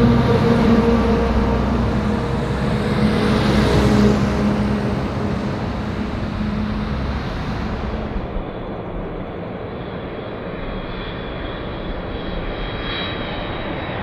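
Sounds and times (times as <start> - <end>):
jet engines roaring: 0.0 - 14.0.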